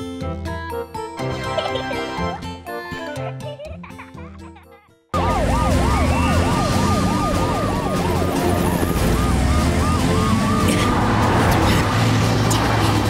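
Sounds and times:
cartoon siren sweeping up and down: 5.2s - 11.0s
stepped repeating siren call: 5.2s - 11.0s.

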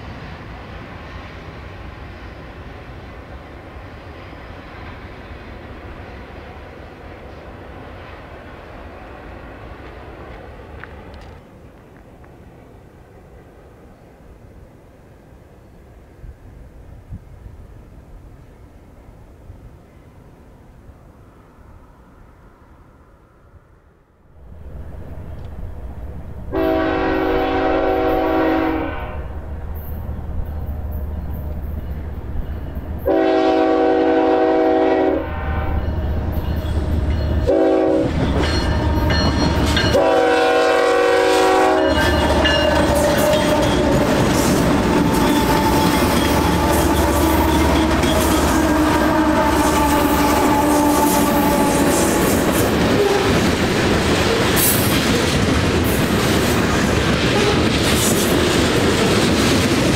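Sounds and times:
locomotive air horn: 26.5s - 29.4s, 33.0s - 36.2s, 37.4s - 44.2s, 45.2s - 53.4s
train wheels clacking on rails: 35.6s - 40.9s, 41.7s - 59.9s.

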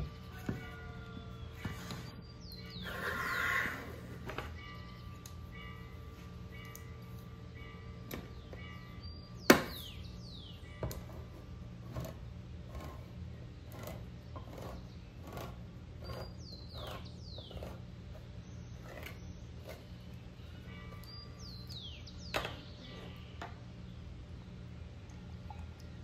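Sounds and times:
metal squeaks: 10.6s - 17.9s.

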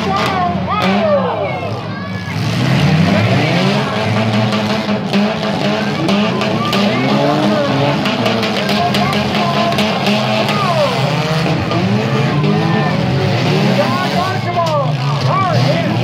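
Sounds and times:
small car engines revving: 0.0s - 16.0s
cars ramming knocks: 3.0s - 12.5s.

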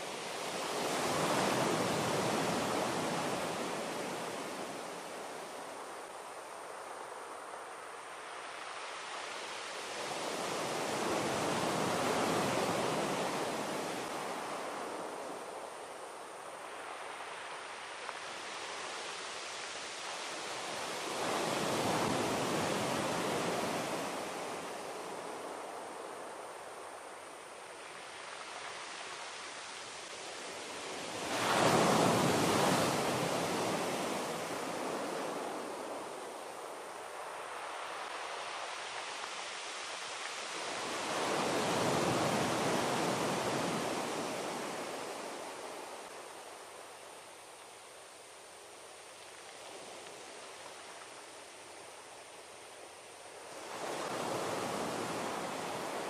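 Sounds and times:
rushing surf-like noise: 0.0s - 56.0s.

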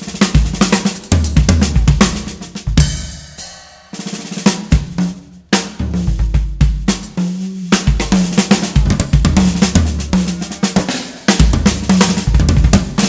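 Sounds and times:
fast drum-kit beat: 0.0s - 13.0s.

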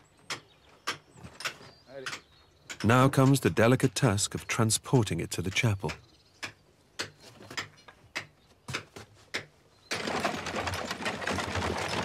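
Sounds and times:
wooden cart rattling over dirt: 9.7s - 12.0s.

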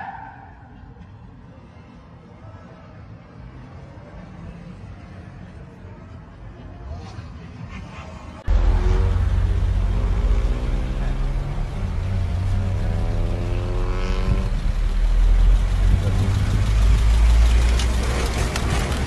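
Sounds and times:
road and wind noise: 0.0s - 19.0s
car engine revving up: 8.5s - 19.0s.

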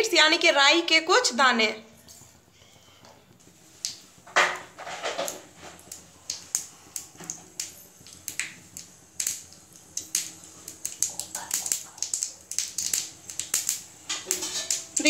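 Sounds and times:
oil sizzling: 0.0s - 15.0s
mustard seeds popping: 3.8s - 15.0s.

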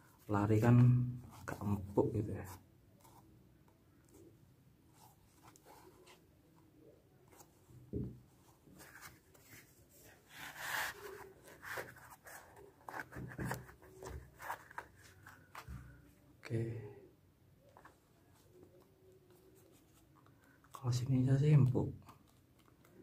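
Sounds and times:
small taps and knocks: 7.8s - 8.3s
soft thump: 7.9s - 8.2s.

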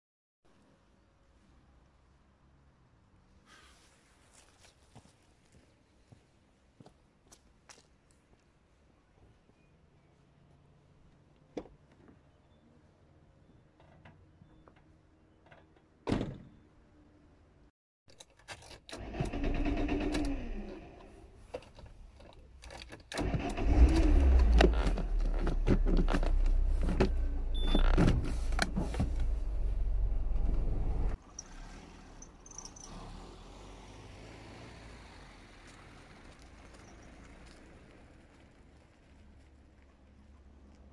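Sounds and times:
car engine rumbling: 19.6s - 32.9s.

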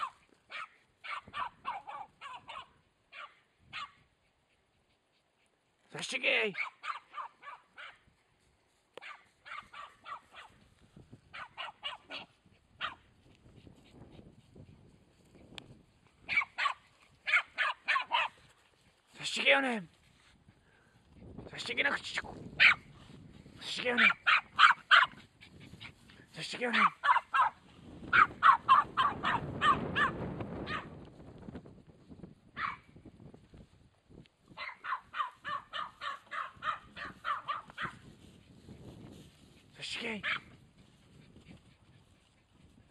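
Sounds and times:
dog yapping: 0.0s - 4.0s, 6.6s - 8.0s, 9.0s - 10.6s, 11.4s - 13.0s, 16.3s - 18.4s, 22.6s - 22.8s, 24.0s - 25.2s, 26.8s - 30.9s, 32.6s - 32.8s, 34.6s - 38.0s, 40.2s - 40.5s.

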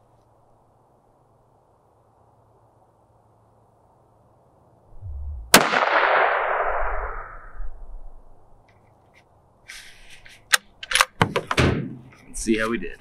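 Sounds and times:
rifle shot with echo: 5.5s - 7.2s
short scraping sounds: 9.1s - 10.5s.

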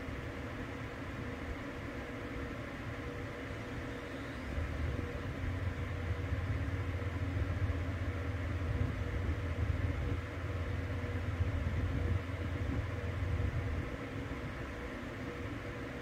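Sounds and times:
faint steady hum: 0.0s - 16.0s
car cabin road rumble: 4.5s - 14.1s.

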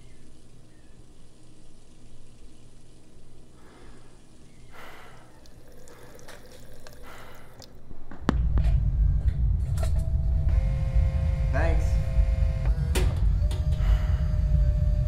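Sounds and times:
water drips: 5.3s - 7.9s
loud low hum: 8.3s - 15.0s.

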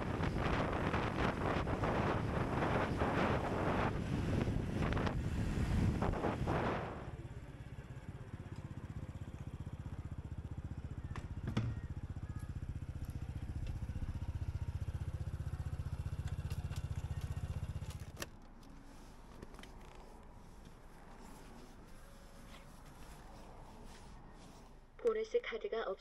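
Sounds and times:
motorcycle engine idling: 7.1s - 18.2s
engine knock: 7.9s - 18.0s.

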